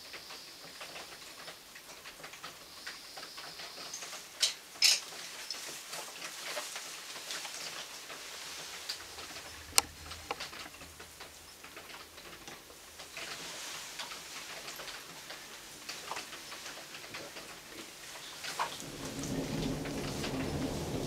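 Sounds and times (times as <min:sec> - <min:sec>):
rain falling: 0:00.0 - 0:21.0
thunder rumbling: 0:08.5 - 0:13.2, 0:17.5 - 0:21.0.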